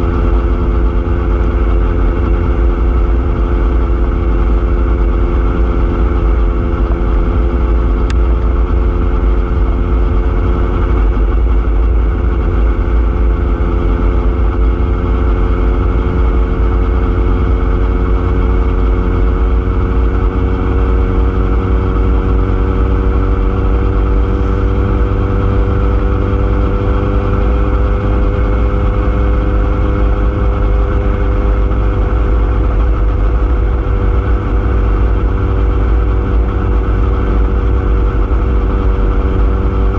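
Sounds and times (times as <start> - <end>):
vehicle motor running: 0.0 - 39.9
wind rumble on microphone: 0.0 - 39.9.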